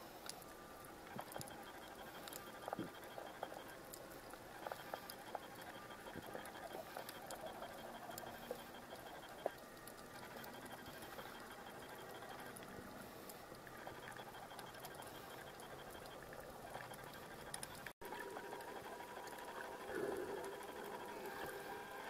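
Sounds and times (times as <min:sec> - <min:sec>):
faint high-pitched ticking: 0:00.1 - 0:22.0
underwater crackling clicks: 0:13.9 - 0:17.9.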